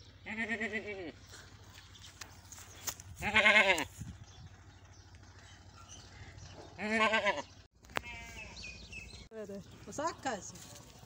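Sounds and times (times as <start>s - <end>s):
goat bleating: 0.2s - 1.3s, 3.1s - 4.0s, 6.8s - 8.8s.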